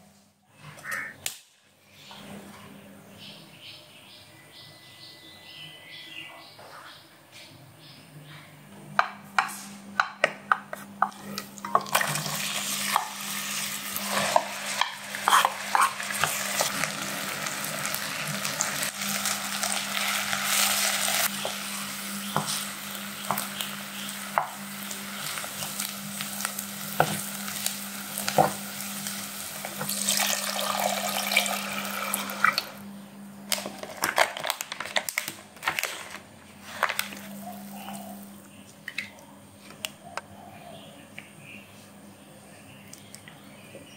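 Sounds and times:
onions sizzling in a pan: 11.8 - 32.4.

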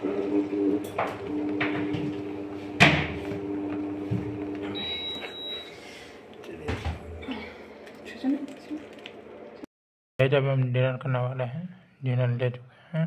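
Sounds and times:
milk boiling in saucepan: 0.0 - 5.2
induction cooktop humming: 0.0 - 9.6
high beep: 4.8 - 5.8.

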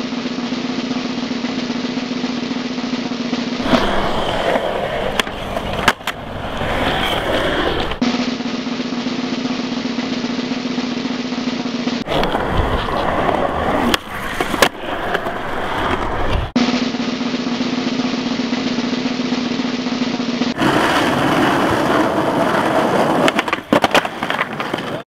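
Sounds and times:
skateboard wheels rolling on concrete: 0.0 - 25.0
skateboard clacks: 3.6 - 8.3, 12.0 - 16.6, 20.5 - 25.0.

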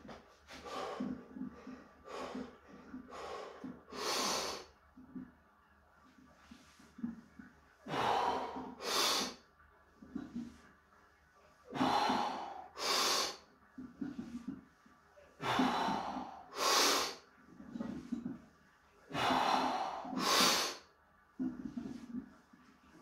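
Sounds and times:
forceful heavy breaths: 15.4 - 17.2, 19.1 - 20.9.

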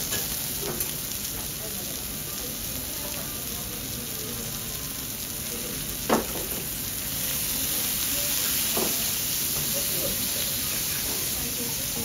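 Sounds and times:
beef sizzling on a griddle: 0.0 - 12.0.

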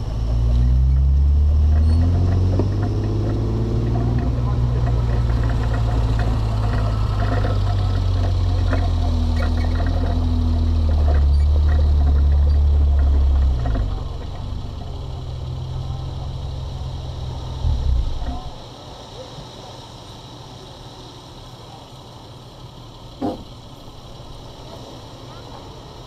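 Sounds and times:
truck engine running: 0.0 - 26.0
light clicks and rattles: 1.7 - 16.0.

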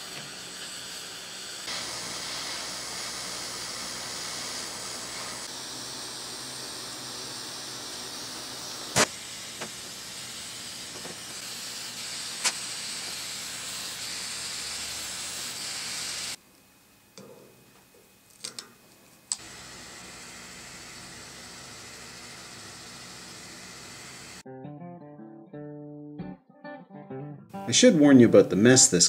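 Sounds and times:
gas torch flame hissing: 0.0 - 16.4, 19.3 - 24.4.

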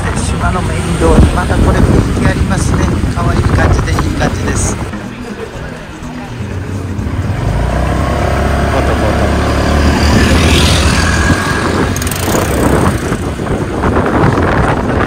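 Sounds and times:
wind on microphone: 0.9 - 4.9, 9.5 - 15.0
motor scooter engine: 4.2 - 15.0.

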